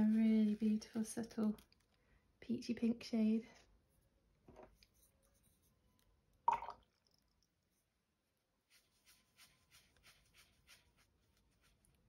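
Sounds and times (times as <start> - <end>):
paintbrush scrubbing on paper: 0.0 - 1.1, 8.6 - 12.0.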